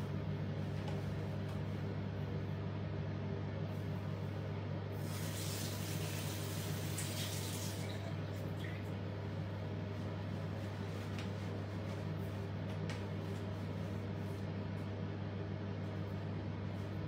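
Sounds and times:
tap water running: 5.0s - 8.9s.

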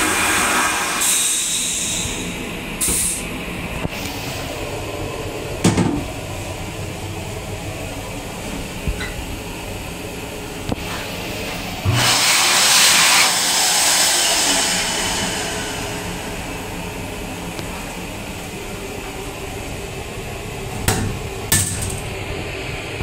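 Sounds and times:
hand dryer blowing: 0.0s - 6.2s, 10.8s - 21.5s.

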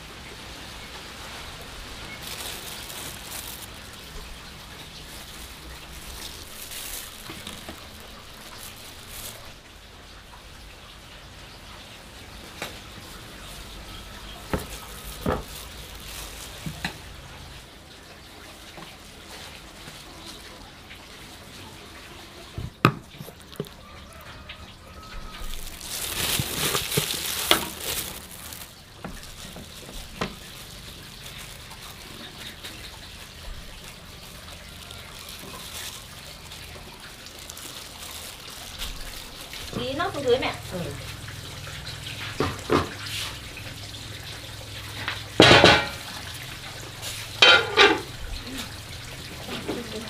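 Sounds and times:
soft rustling: 1.5s - 9.6s, 13.2s - 17.2s, 22.8s - 40.6s.

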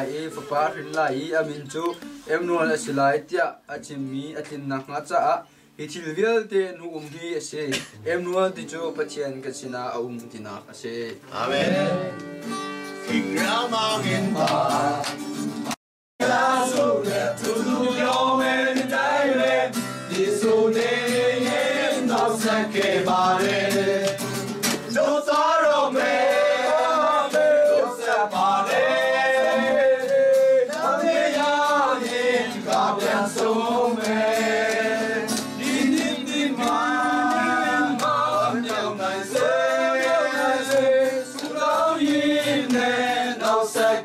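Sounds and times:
hands clapping along: 0.0s - 2.2s, 13.0s - 44.0s
acoustic guitar: 0.0s - 5.9s, 7.0s - 44.0s
group singing a carol: 11.3s - 12.4s, 13.1s - 15.2s, 16.2s - 44.0s.

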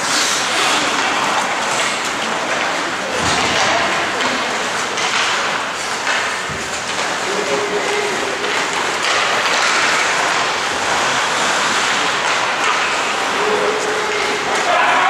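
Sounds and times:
rink hubbub: 0.0s - 15.0s
skates scraping on ice: 0.0s - 15.0s.

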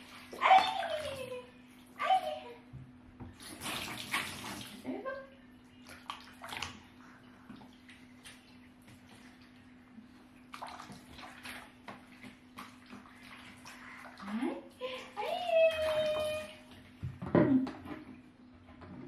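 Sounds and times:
bath water splashing and trickling: 0.0s - 2.2s, 3.3s - 18.4s.

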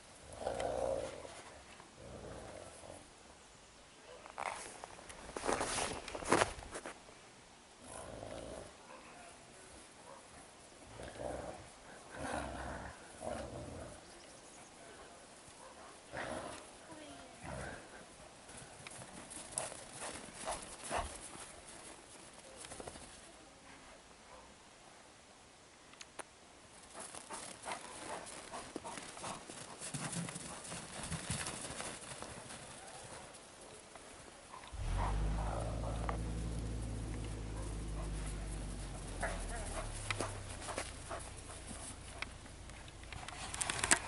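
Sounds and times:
wolves growling: 0.2s - 3.1s, 7.8s - 8.8s, 10.8s - 14.2s, 16.1s - 16.8s, 17.4s - 18.0s, 34.6s - 43.1s
footsteps crunching through snow: 4.4s - 7.0s.

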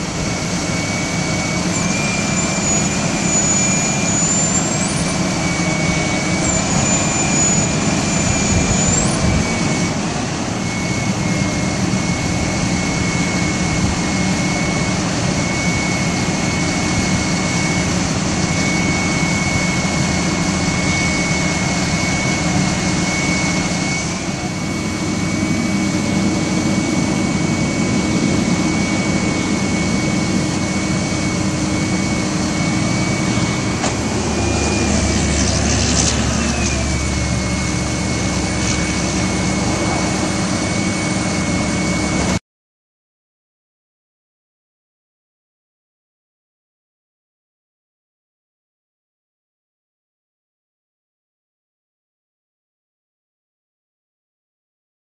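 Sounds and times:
hydraulic whine: 0.0s - 42.4s
truck engine running: 0.0s - 42.4s.

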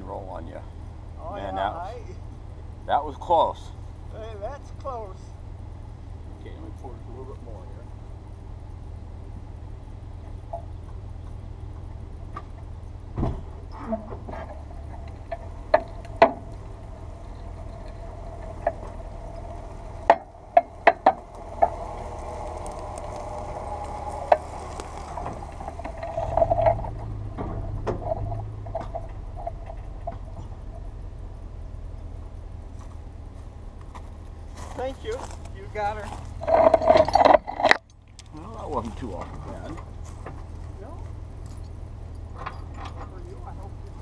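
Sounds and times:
vehicle engine running under load: 0.0s - 44.0s
metallic chain clanks and knocks: 36.0s - 37.9s, 41.4s - 43.5s.

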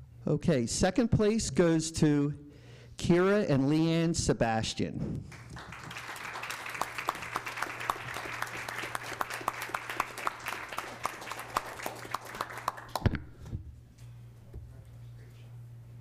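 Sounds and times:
small audience applauding: 5.3s - 13.2s.

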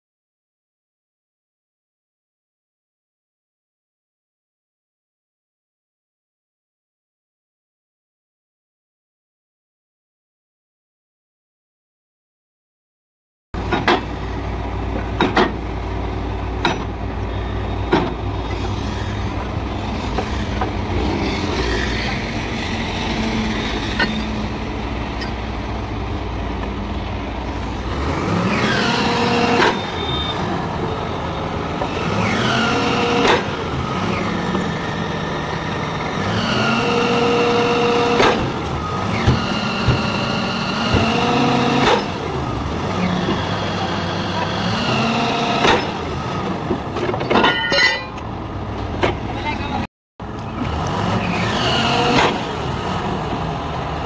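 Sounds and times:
sharp metal clanks: 47.2s - 48.2s.

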